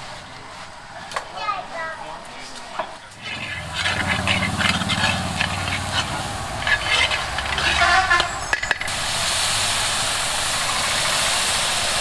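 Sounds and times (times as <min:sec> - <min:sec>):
kitchen utensils scraping and clinking: 0:03.0 - 0:09.0
low steady hum: 0:03.2 - 0:10.8
steady hiss: 0:03.2 - 0:12.0.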